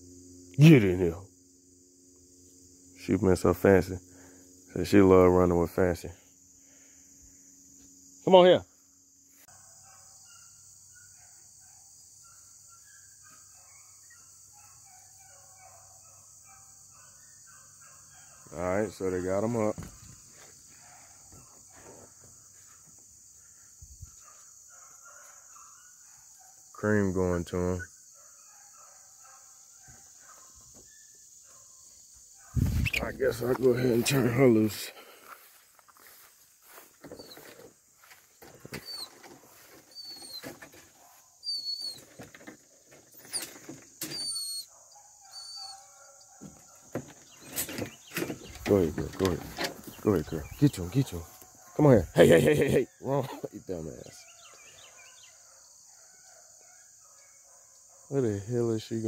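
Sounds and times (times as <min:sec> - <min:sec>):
crickets and insects chirping: 0:00.0 - 0:59.0
rustling through tall grass: 0:35.2 - 0:40.0.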